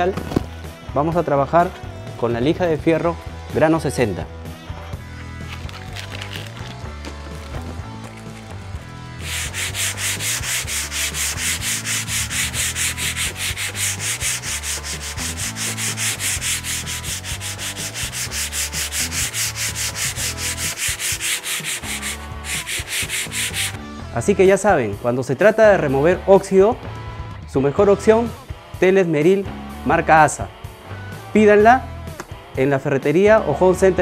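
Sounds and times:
sanding metal by hand: 9.2 - 23.8.

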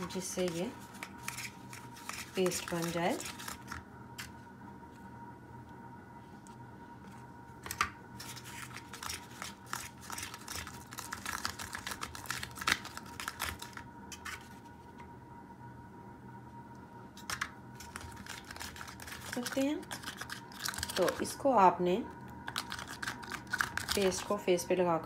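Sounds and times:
plastic spoon scraping in cup: 17.8 - 21.3.

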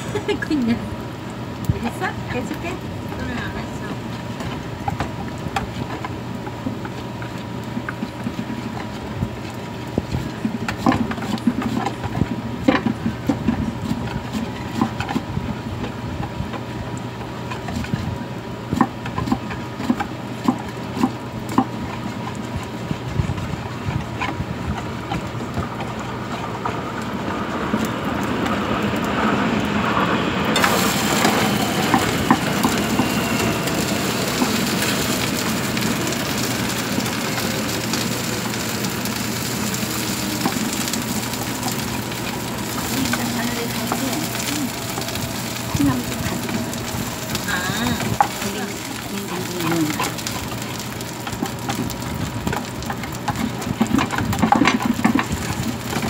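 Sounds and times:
steady low hum: 0.0 - 54.4
pancakes sizzling in oil: 30.6 - 56.0.

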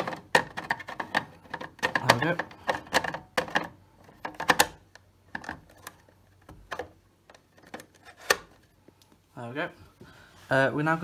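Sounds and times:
plastic clicks and scrapes: 0.0 - 8.7.

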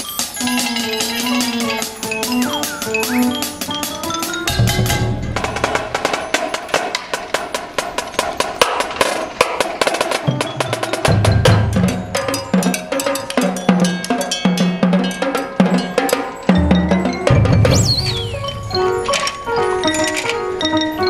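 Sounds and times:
marching bass drum notes: 1.9 - 6.4.

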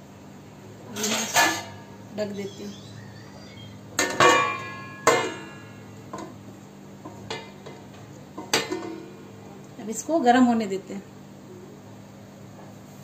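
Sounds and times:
metal lid clanking on pot: 1.0 - 1.8, 4.0 - 6.3.

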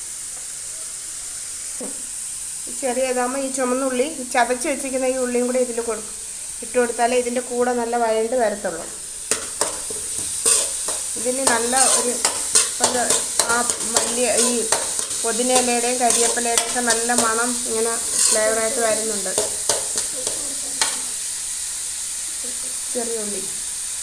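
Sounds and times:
oil sizzling in a pan: 0.0 - 24.0
spoon clicking against pan: 9.3 - 17.4, 19.3 - 21.0
spoon scraping pan bottom squeakily: 18.0 - 18.5.

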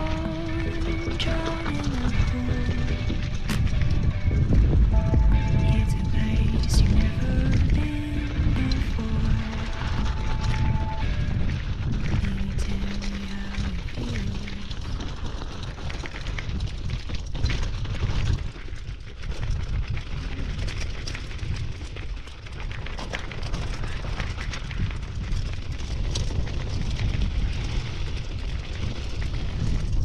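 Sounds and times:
wind and tyres rumbling: 0.0 - 30.0
bike clattering over rocks: 13.6 - 30.0.

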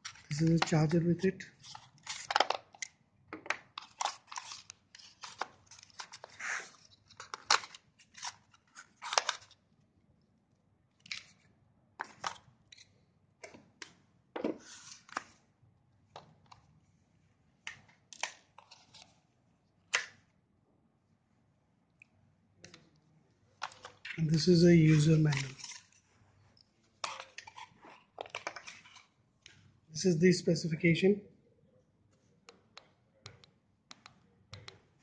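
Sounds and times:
clicks and taps: 32.4 - 34.9.

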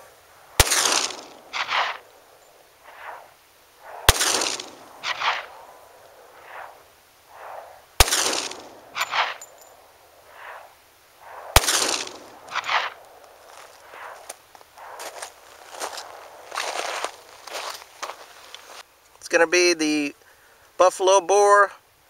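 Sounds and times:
pistol shots: 0.6 - 2.0, 3.8 - 5.6, 8.0 - 9.5, 11.2 - 13.0
softer gunshot echo report: 0.6 - 2.0, 3.8 - 5.6, 7.4 - 9.5, 11.2 - 13.0.

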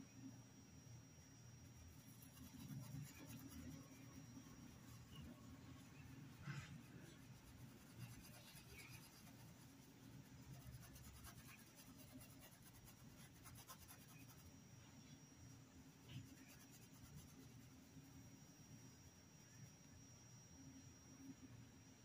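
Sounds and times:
low room hum: 0.0 - 22.0
paintbrush strokes on fabric: 1.8 - 15.2, 16.0 - 18.1.

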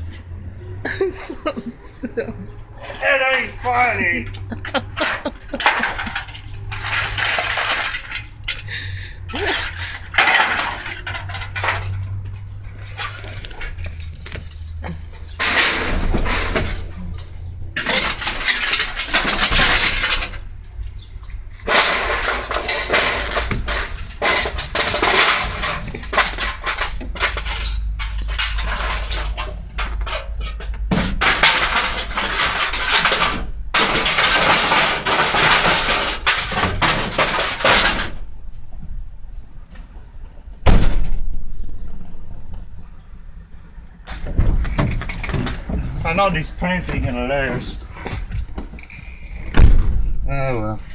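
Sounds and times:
sheet metal clanking and rattling: 2.7 - 21.0, 21.6 - 38.4.

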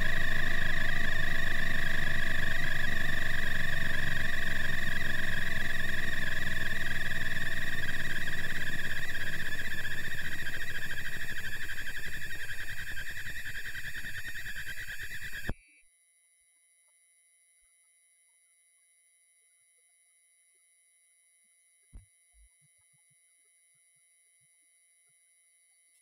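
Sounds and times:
low motor hum: 0.0 - 15.5
high electronic inverter tone: 0.0 - 15.8.

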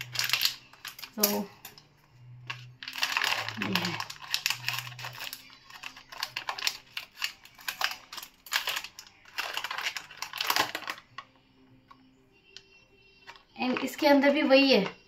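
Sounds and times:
foil crinkling: 0.0 - 1.5, 2.5 - 11.3
scissors snipping foil: 0.0 - 1.8, 2.5 - 11.2.

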